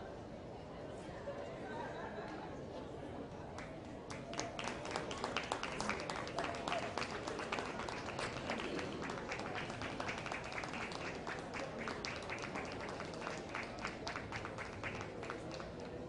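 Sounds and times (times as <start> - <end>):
audience applauding: 4.1 - 16.0.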